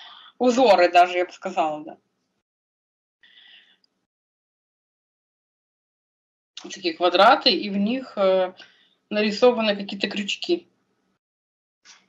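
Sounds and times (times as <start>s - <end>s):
person speaking: 0.4s - 2.0s, 6.6s - 10.6s.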